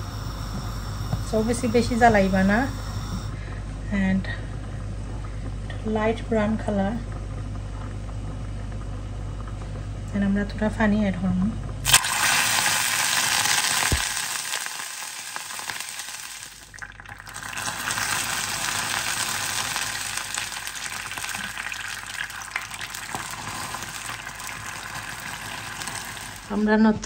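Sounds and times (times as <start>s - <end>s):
syrup bubbling hiss: 11.9s - 26.7s
water sizzling in hot pan: 11.9s - 26.7s.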